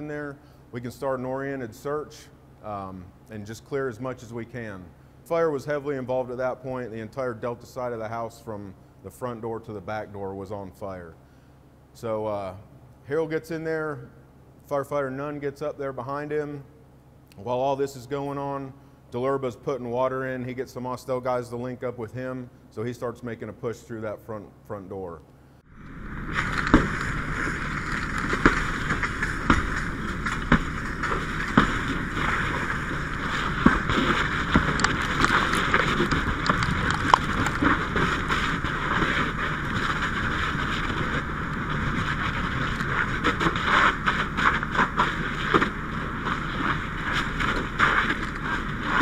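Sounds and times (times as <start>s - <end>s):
house fire crackling: 25.6s - 49.0s
fire rushing hiss: 25.7s - 49.0s.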